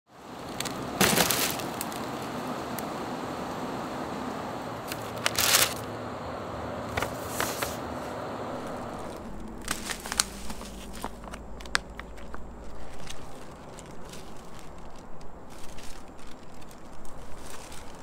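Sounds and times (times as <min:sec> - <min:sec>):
plastic bag and paper crinkling: 0:00.4 - 0:02.2, 0:04.8 - 0:05.9, 0:06.9 - 0:07.8, 0:08.6 - 0:18.0.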